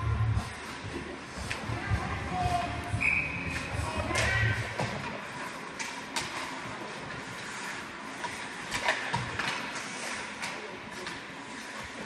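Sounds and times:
hockey stick clacking puck: 0:03.5 - 0:11.3.

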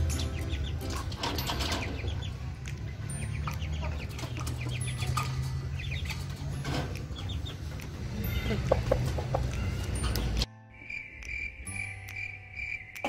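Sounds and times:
rooster clucking: 0:08.2 - 0:09.7.

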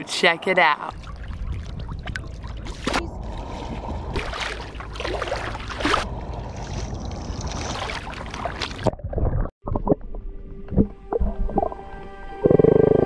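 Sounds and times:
wind on microphone: 0:00.9 - 0:04.4
water sloshing: 0:00.9 - 0:10.0.

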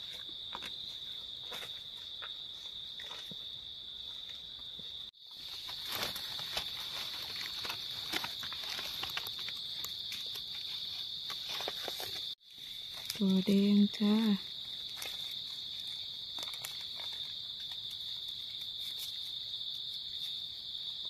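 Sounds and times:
leaves and soil rustling: 0:00.0 - 0:21.0
footsteps on dry leaves: 0:05.2 - 0:13.3.

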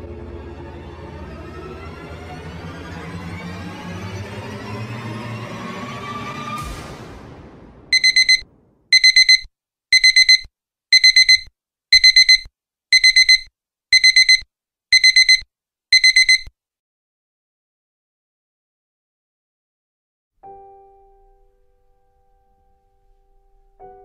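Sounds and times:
alarm clock beeping: 0:07.9 - 0:16.5.

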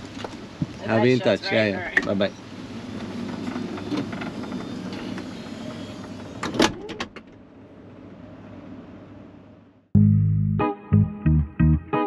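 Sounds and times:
power sliding door motoring: 0:02.1 - 0:07.5.

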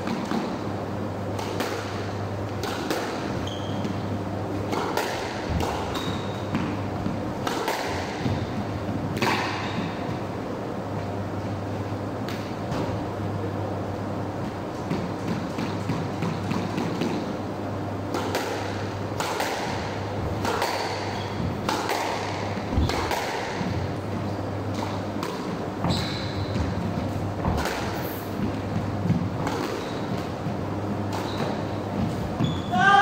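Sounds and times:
steady low hum: 0:00.0 - 0:33.0
ball smacking court walls: 0:01.3 - 0:10.3, 0:18.1 - 0:23.9, 0:24.7 - 0:32.6
squash ball struck with racket: 0:01.4 - 0:10.3, 0:14.5 - 0:17.4, 0:18.1 - 0:24.0, 0:24.7 - 0:32.9.

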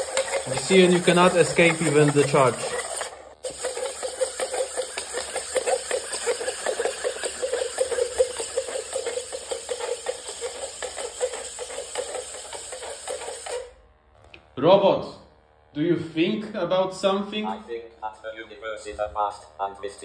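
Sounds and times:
robot leg servos whirring: 0:00.0 - 0:13.8
feet tapping on laminate floor: 0:04.2 - 0:13.6.

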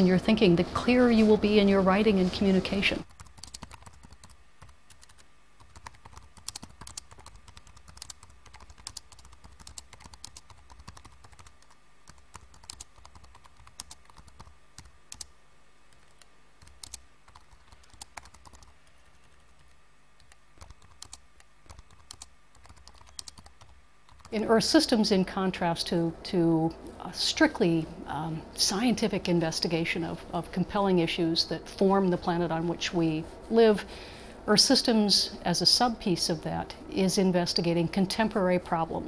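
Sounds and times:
low steady hum: 0:00.0 - 0:39.0
faint keyboard typing: 0:00.3 - 0:24.4.

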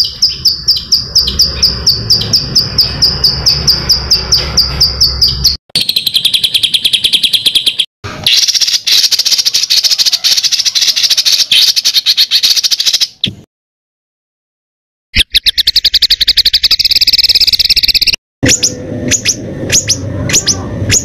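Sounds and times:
songbird chirps: 0:00.0 - 0:13.4.

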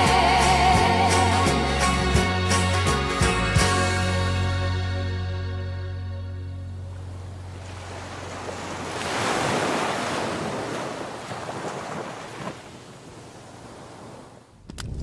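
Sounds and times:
sea waves breaking on sand: 0:06.8 - 0:14.5.

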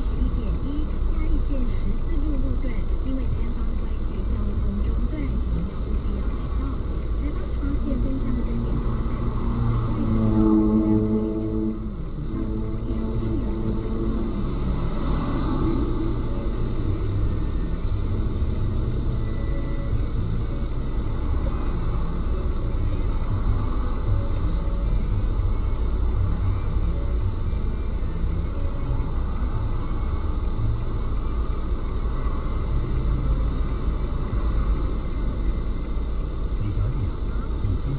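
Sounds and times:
car engine rumble: 0:00.0 - 0:37.9
road noise: 0:00.0 - 0:37.9.

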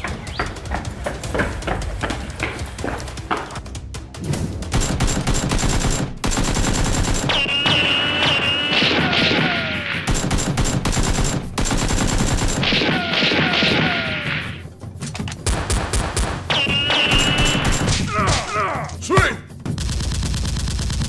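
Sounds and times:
rapid automatic gunfire: 0:04.7 - 0:09.3, 0:10.0 - 0:13.6, 0:15.5 - 0:17.9, 0:19.7 - 0:21.0.

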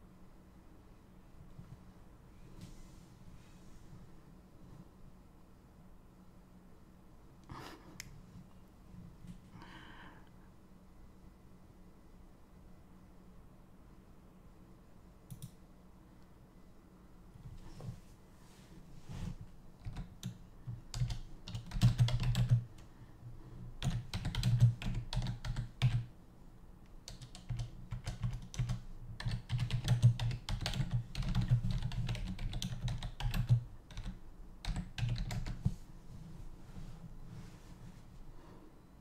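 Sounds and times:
typing taps: 0:23.8 - 0:26.1, 0:27.1 - 0:35.6.

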